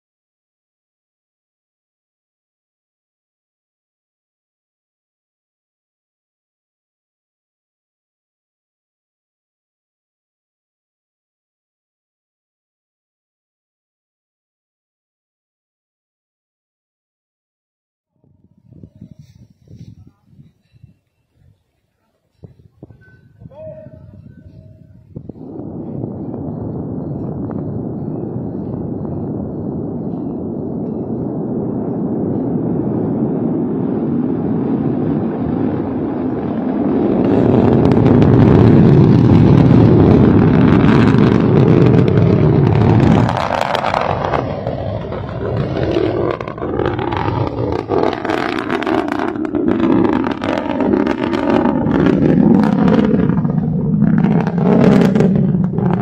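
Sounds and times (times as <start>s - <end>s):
ragged rocket crackle: 22.4s - 56.0s
rocket engines roaring: 22.4s - 56.0s.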